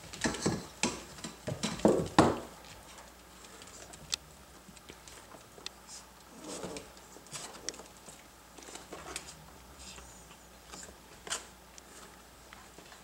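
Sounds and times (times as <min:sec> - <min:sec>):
puppies rustling: 0:00.0 - 0:13.0.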